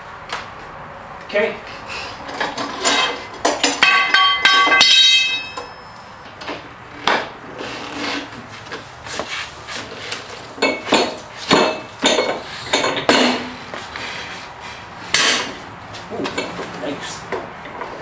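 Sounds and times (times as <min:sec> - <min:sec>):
metal tire changer parts clanking: 0:02.2 - 0:08.9, 0:09.7 - 0:13.8, 0:15.0 - 0:18.0
ringing metal strikes: 0:02.9 - 0:06.2.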